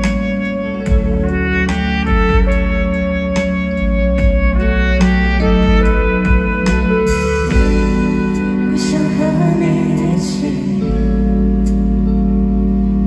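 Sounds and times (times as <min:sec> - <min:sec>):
drums: 0:00.0 - 0:12.1
bass guitar: 0:00.0 - 0:13.0
electric guitars: 0:00.0 - 0:13.0
keyboard: 0:00.0 - 0:13.0
live band playing through pa: 0:00.0 - 0:13.0
person singing: 0:07.6 - 0:11.3.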